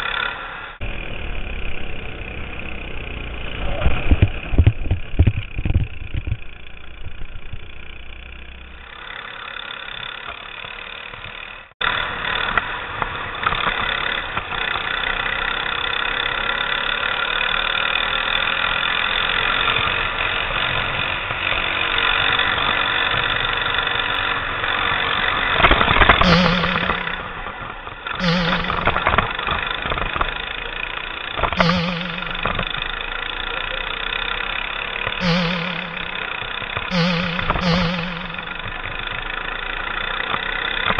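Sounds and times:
go-kart engine running: 0.0 - 40.9.

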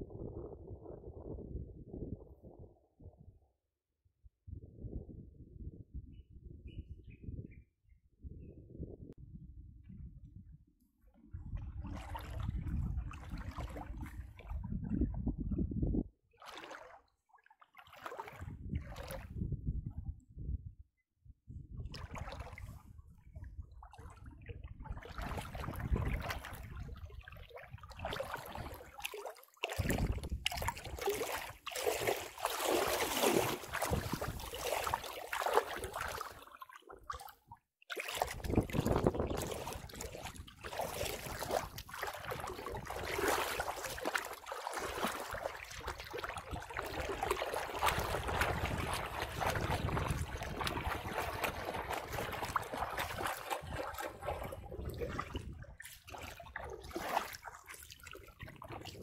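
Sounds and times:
dog splashing through water: 28.0 - 59.0.

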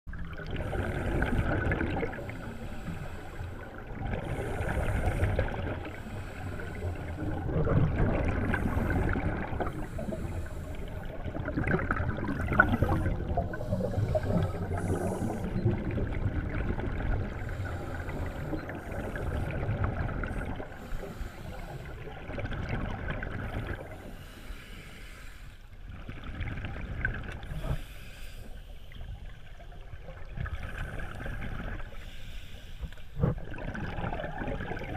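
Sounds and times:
underwater regulator breathing bubbles: 0.4 - 16.5.

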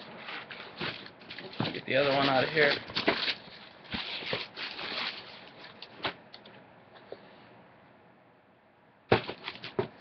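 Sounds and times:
shoebox rustling and clicks: 9.1 - 10.0.

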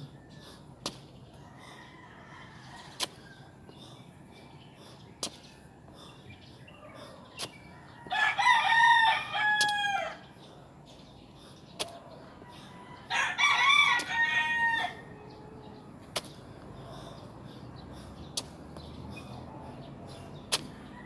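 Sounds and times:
rooster crowing: 7.8 - 10.2, 12.8 - 15.7.

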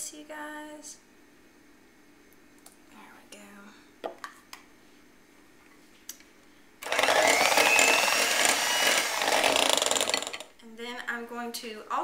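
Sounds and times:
electric hand mixer whining: 6.8 - 10.4.

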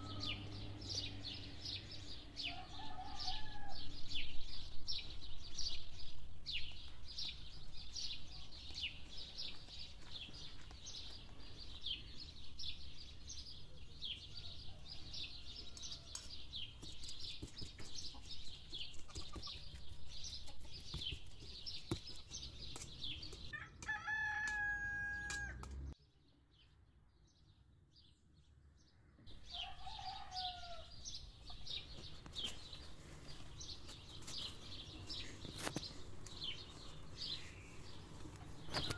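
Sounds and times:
rooster crowing: 0.0 - 0.7, 2.4 - 3.9, 23.6 - 25.6, 29.5 - 30.9
small birds chirping: 0.0 - 23.6, 25.9 - 38.9.

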